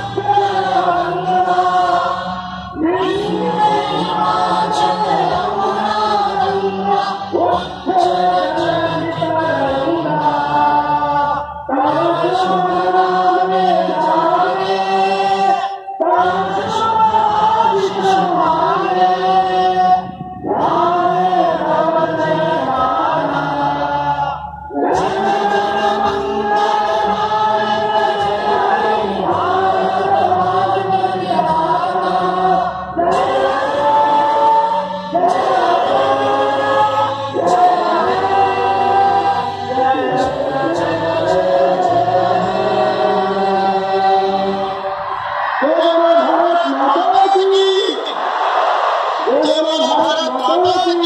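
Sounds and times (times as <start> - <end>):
choir singing slow melody: 0.0 - 45.7.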